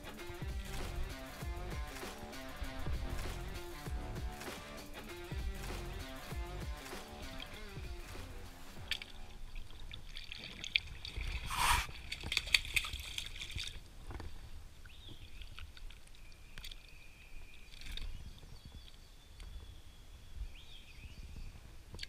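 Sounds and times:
water sloshing around wading legs: 0:08.8 - 0:18.2.

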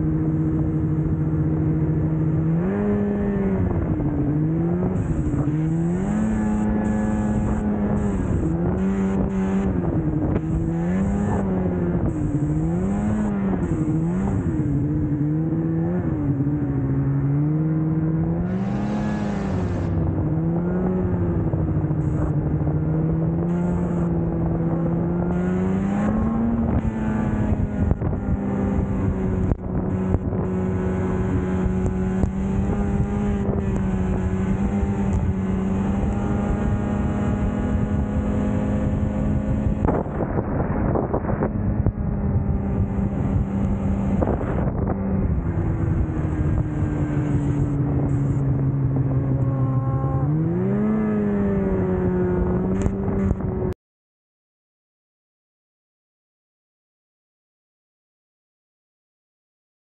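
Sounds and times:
rushing noise of riding: 0:00.0 - 0:53.8
snowmobile engine revving: 0:00.0 - 0:53.8.

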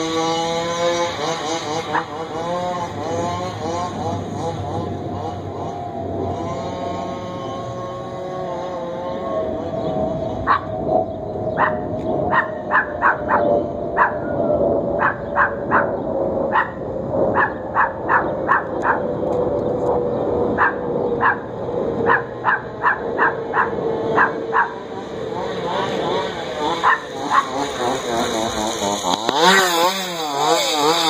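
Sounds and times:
engine drone: 0:00.0 - 0:31.0
dog barking: 0:10.4 - 0:10.7, 0:11.6 - 0:14.3, 0:15.0 - 0:19.1, 0:20.6 - 0:24.8, 0:26.8 - 0:27.5.

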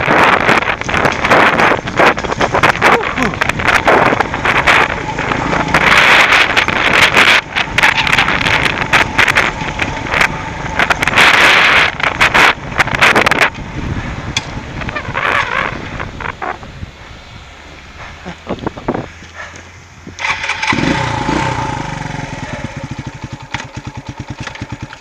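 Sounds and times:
motorcycle rushing noise: 0:00.0 - 0:25.0
knocks and rattles over stones: 0:00.1 - 0:05.8.

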